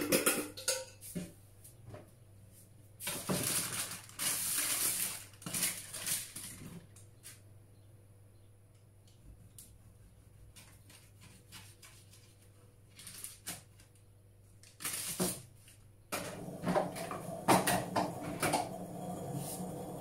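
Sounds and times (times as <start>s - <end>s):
dishes and utensils clattering: 0.0s - 1.1s
paper rustling: 3.0s - 7.4s, 10.5s - 15.8s.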